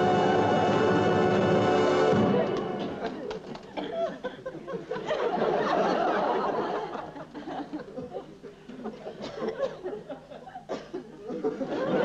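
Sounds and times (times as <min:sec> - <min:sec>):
audience laughing: 0:02.2 - 0:12.0.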